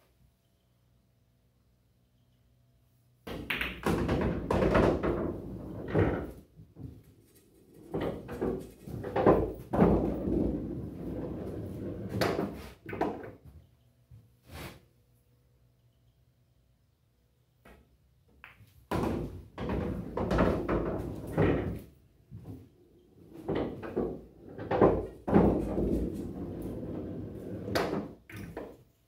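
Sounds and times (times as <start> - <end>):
pool balls clacking: 3.3 - 6.4, 7.8 - 13.4, 18.4 - 22.0, 23.0 - 28.8
ball rolling through return channel: 3.3 - 13.3, 22.4 - 28.8.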